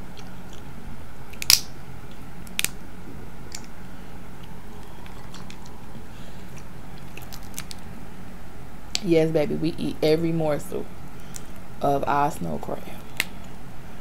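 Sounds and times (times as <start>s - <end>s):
shell pieces clicking: 1.3s - 1.7s, 2.4s - 2.8s, 3.5s - 3.7s, 4.8s - 5.8s, 6.5s - 7.8s
crab shell cracking: 1.3s - 1.8s, 2.4s - 2.8s, 3.5s - 3.7s, 4.4s - 5.8s, 6.4s - 7.9s, 11.1s - 11.6s, 13.1s - 13.6s.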